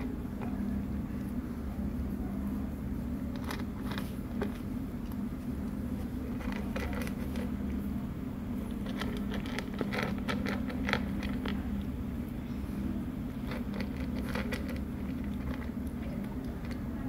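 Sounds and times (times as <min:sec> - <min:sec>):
steady low hum: 0:00.0 - 0:17.0
cat crunching dry kibble: 0:03.3 - 0:07.8, 0:08.6 - 0:12.0, 0:13.3 - 0:17.0.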